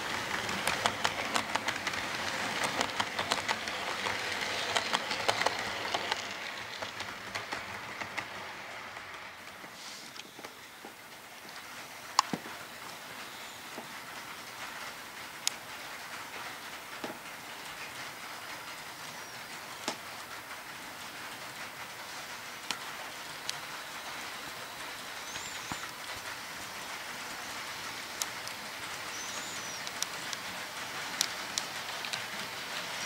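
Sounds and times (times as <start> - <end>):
model train wheels hissing on rail: 0.0 - 33.0
sharp clicks: 0.5 - 8.3.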